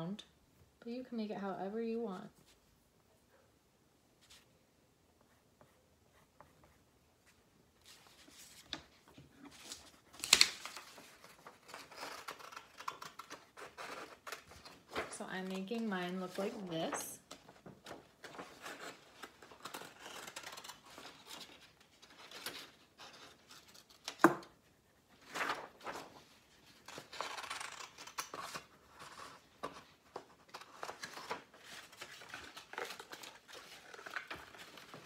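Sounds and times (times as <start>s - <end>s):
paper rustling: 6.4s - 35.0s
scissors snipping paper: 9.5s - 14.8s.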